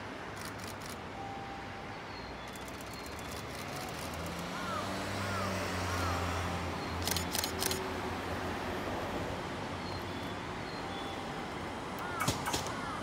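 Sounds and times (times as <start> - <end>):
sharp clicks: 7.0 - 7.8, 12.0 - 12.8.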